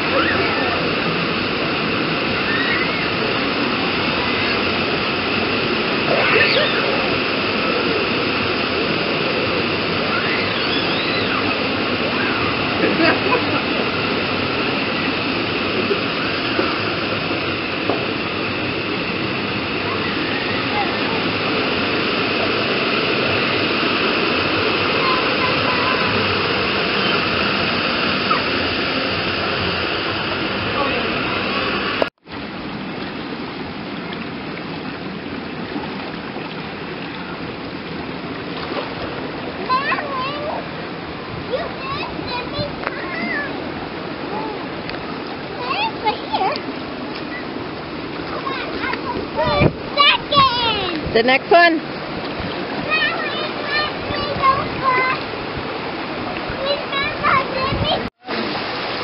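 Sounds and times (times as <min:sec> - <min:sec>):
distant children shouting: 0:00.0 - 0:32.0
water rushing from fountains: 0:00.0 - 0:59.0.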